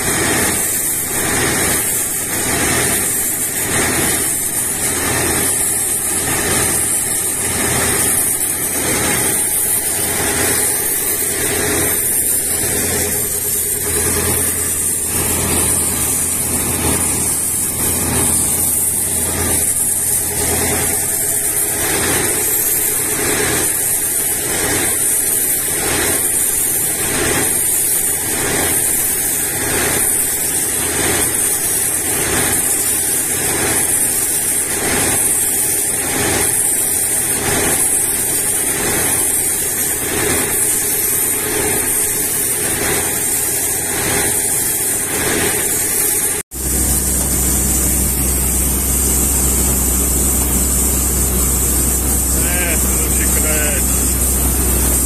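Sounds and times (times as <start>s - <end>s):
drilling rig running: 0.0s - 55.0s
constant high hiss: 46.6s - 55.0s.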